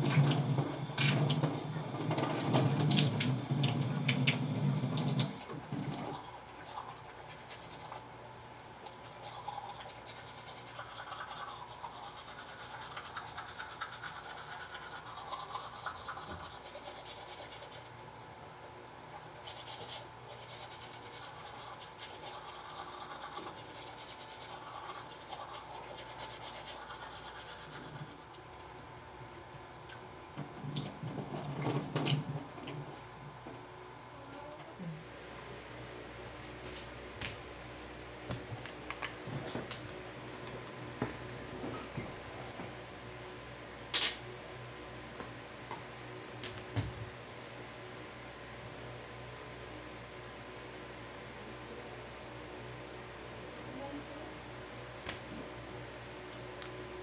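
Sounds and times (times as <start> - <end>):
tap water running and splashing: 0.0 - 6.2, 30.6 - 32.4
toothbrush scrubbing teeth: 6.0 - 18.1, 19.3 - 28.4.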